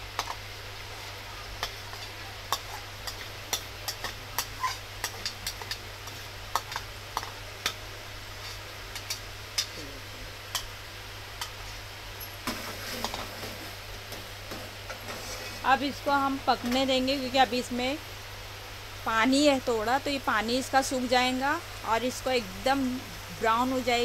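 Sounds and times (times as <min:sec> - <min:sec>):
seeds stirred in pot: 0:00.0 - 0:09.9
faint oil sizzle: 0:00.0 - 0:24.0.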